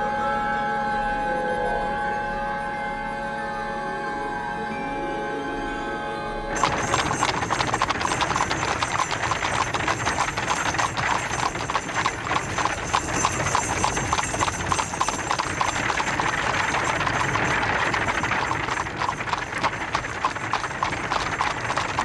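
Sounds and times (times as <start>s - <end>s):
carriage wheels rattling: 6.5s - 22.0s
hooves clip-clopping: 6.5s - 22.0s.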